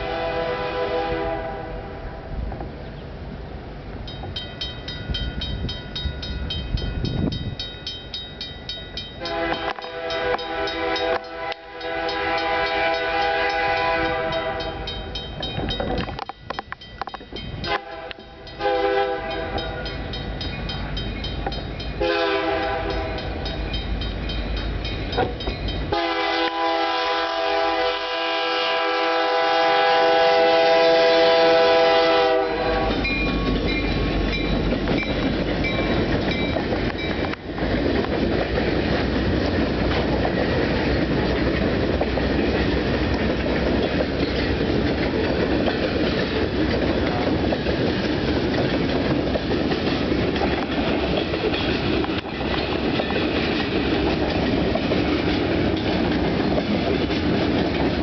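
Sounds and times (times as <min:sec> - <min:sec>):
locomotive air horn blasts: 0:00.0 - 0:02.4, 0:09.2 - 0:15.1, 0:17.7 - 0:20.1, 0:22.0 - 0:23.5, 0:25.9 - 0:33.1
locomotive engine rumble: 0:00.0 - 0:58.0
train wheel noise: 0:00.0 - 0:58.0
bell ringing: 0:32.9 - 0:37.3.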